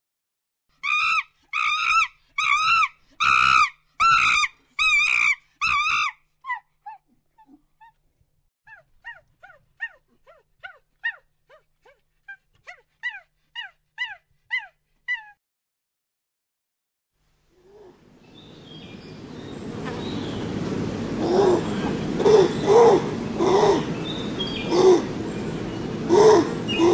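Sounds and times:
monkey calling: 0.8s - 7.5s, 17.6s - 26.9s.

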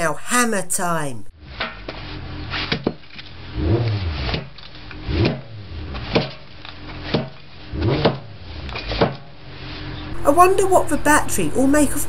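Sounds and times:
plastic and metal cracking: 1.6s - 3.4s, 4.2s - 9.3s.

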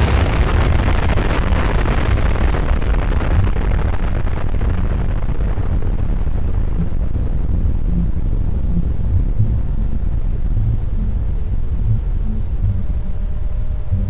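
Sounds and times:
rush of air and spray: 0.0s - 6.5s
hovercraft engine rumble: 0.0s - 14.0s
wind buffeting microphone: 0.0s - 14.0s.

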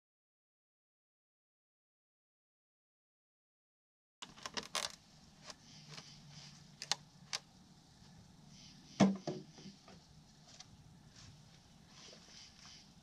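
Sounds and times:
faint low hum: 4.2s - 13.0s.

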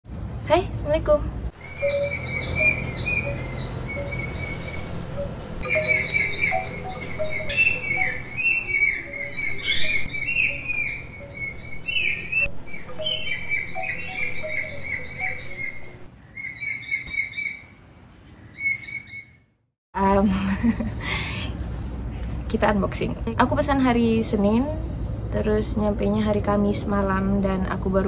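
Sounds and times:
low steady hum: 0.1s - 16.3s
small birds chirping: 1.6s - 19.4s.

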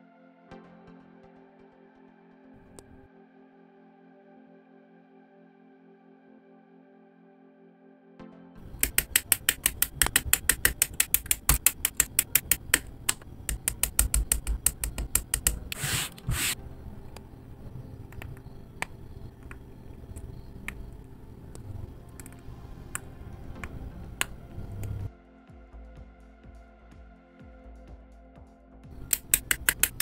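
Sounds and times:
plastic parts snapping together: 8.6s - 16.5s, 29.0s - 30.0s
side cutters clipping plastic: 8.6s - 17.2s, 29.0s - 30.0s.

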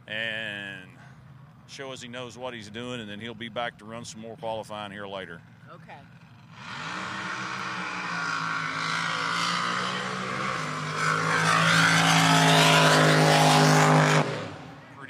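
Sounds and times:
drag boat engine at full throttle: 5.9s - 15.0s.

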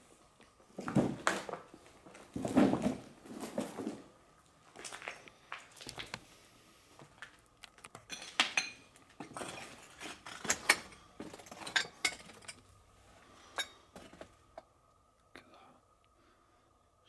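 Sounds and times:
debris clinking underfoot: 0.4s - 6.2s, 7.0s - 14.6s
footsteps crunching on rubble: 0.7s - 6.3s.

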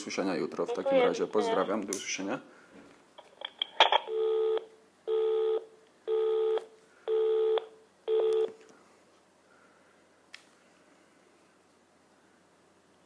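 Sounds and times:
telephone busy tone beeps: 4.1s - 8.5s.

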